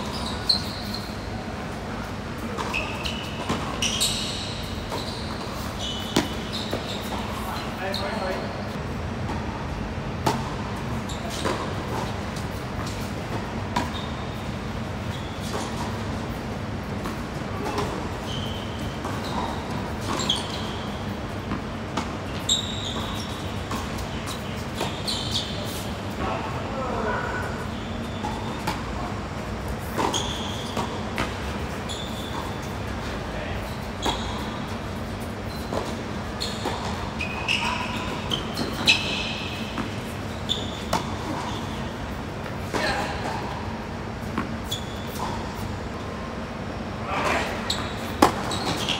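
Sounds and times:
sneakers squeaking on court: 0:00.0 - 0:48.9
racket hitting tennis ball: 0:04.9 - 0:07.3, 0:48.0 - 0:48.9
racket hitting ball: 0:48.1 - 0:48.8.

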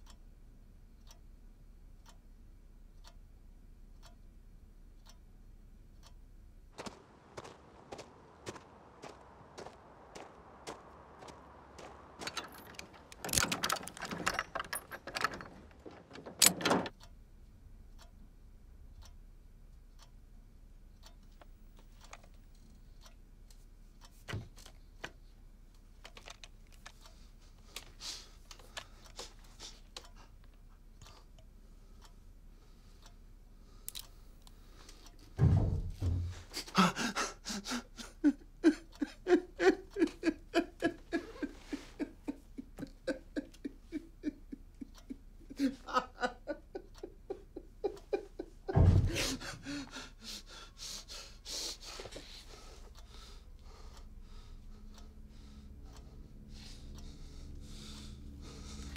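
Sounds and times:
padlock and keys rattling: 0:12.2 - 0:16.9
faint clicks: 0:18.9 - 0:20.2, 0:20.9 - 0:32.2, 0:33.8 - 0:35.4, 0:38.9 - 0:50.4
heavy thump: 0:35.4 - 0:36.5, 0:48.7 - 0:49.6
man sobbing: 0:36.3 - 0:52.2.

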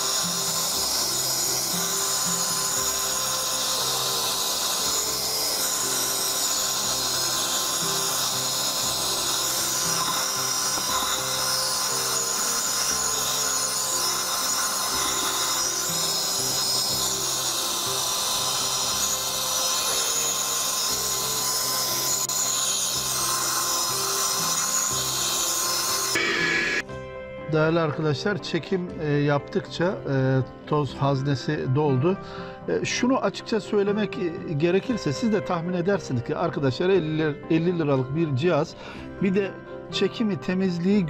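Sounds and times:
handheld vacuum motor whine: 0:00.0 - 0:26.9
background music: 0:00.0 - 0:41.0.

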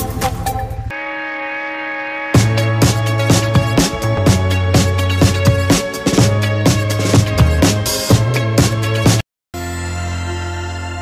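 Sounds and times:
held synth chord: 0:00.9 - 0:08.0, 0:09.6 - 0:11.0
drums and heavy bass: 0:02.4 - 0:09.2.

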